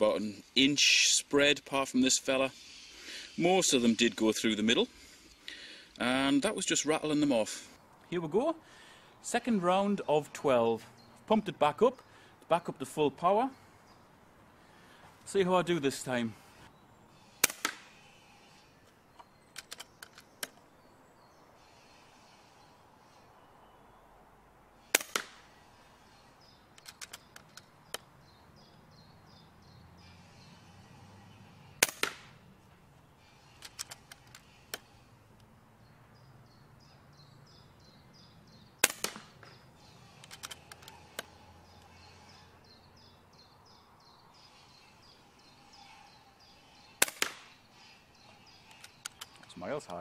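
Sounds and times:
air rifle shot cracking: 17.4 - 17.9, 24.8 - 25.5, 31.8 - 32.4, 38.8 - 39.5, 47.0 - 47.6.

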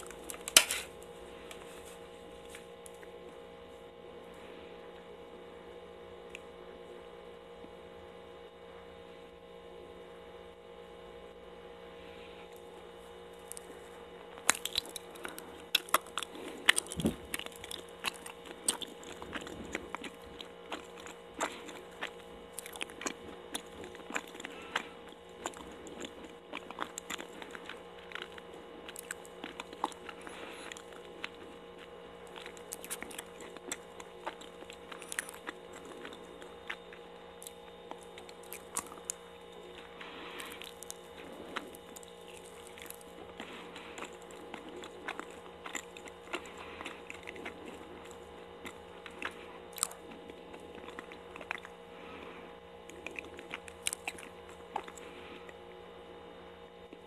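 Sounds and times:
steady electrical hum: 0.0 - 57.0
wet chewing mouth clicks: 14.4 - 39.2, 40.4 - 51.8, 52.9 - 55.1.

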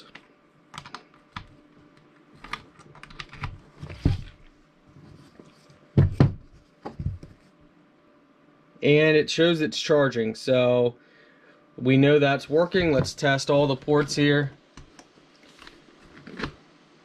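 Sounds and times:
thumps: 12.8 - 13.2.

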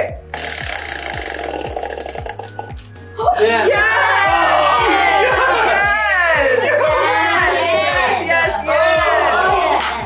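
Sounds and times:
upbeat music with steady beat: 0.0 - 10.0
people cheering and shouting: 3.2 - 10.0.

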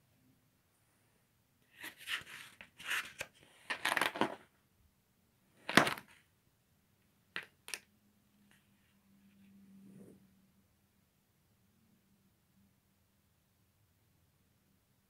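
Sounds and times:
paper pages rustling: 1.7 - 4.4.

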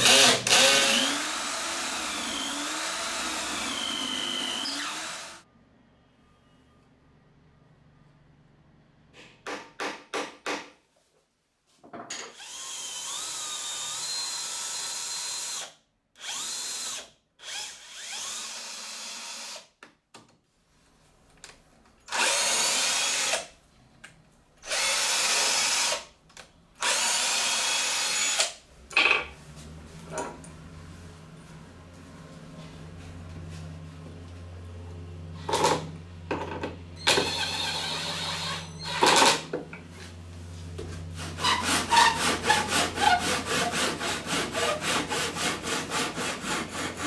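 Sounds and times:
cordless drill whining: 0.0 - 5.4, 12.4 - 19.6, 22.1 - 23.4, 24.7 - 26.0, 26.8 - 28.5, 37.0 - 39.0.

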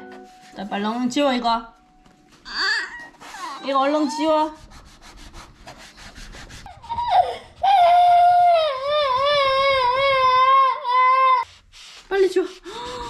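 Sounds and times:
child crying: 2.5 - 4.5, 6.7 - 11.5
rubbing strokes on a table: 3.1 - 7.8, 11.4 - 13.0.

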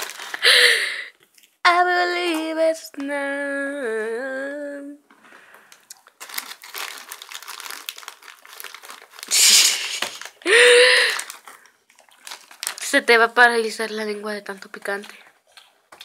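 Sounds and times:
plastic bag crinkling: 0.0 - 1.6, 5.3 - 16.0
short high-pitched voiced sound: 9.3 - 10.2.

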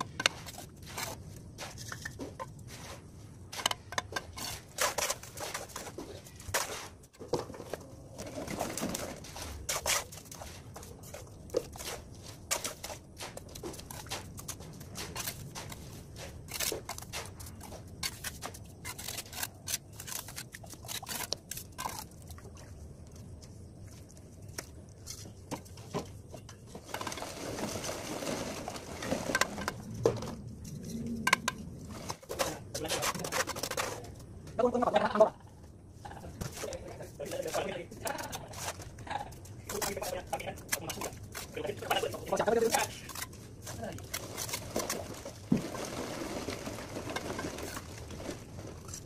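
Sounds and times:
trowel scraping and tapping mortar: 0.0 - 7.8, 8.5 - 22.4, 29.1 - 34.3, 36.3 - 45.9.

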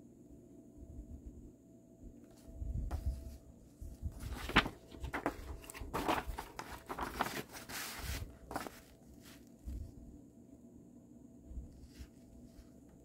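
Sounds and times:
paper pages rustling: 2.4 - 9.8.

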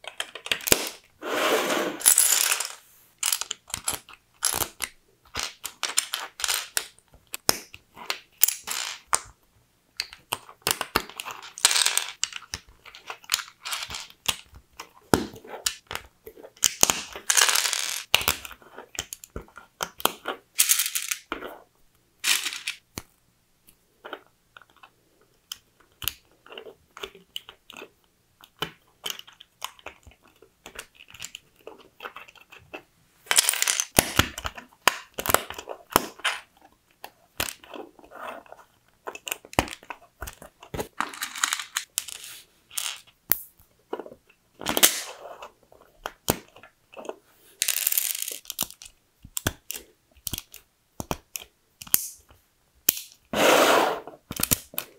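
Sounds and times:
plastic bricks clicking together: 2.1 - 9.4, 24.0 - 37.9, 39.0 - 53.2, 54.2 - 54.9.

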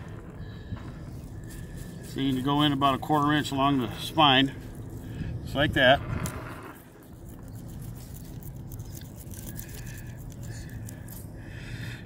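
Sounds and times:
knife rasping through fish: 7.5 - 11.2.

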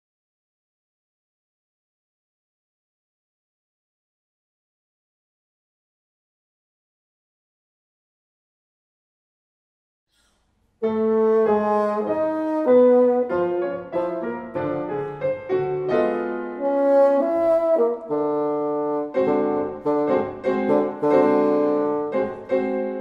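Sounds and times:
piano: 10.2 - 23.0
bassoon: 10.8 - 15.2, 15.9 - 23.0.

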